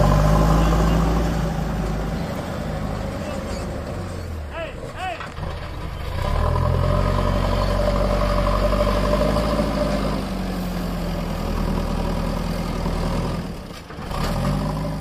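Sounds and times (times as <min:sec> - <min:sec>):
backhoe diesel engine droning: 0:00.0 - 0:15.0.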